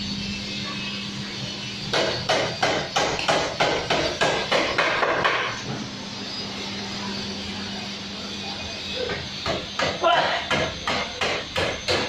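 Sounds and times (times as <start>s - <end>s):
machine hum: 0.0s - 12.0s
hammering: 1.9s - 5.6s, 9.1s - 12.0s.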